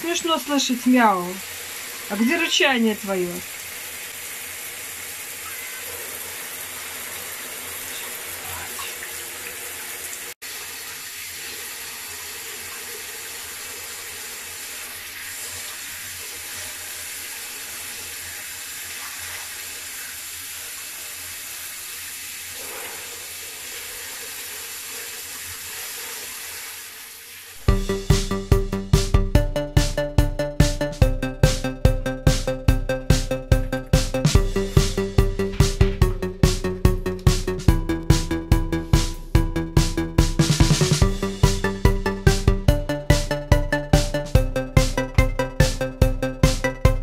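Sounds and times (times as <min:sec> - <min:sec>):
shower head spraying water: 0:00.0 - 0:28.2.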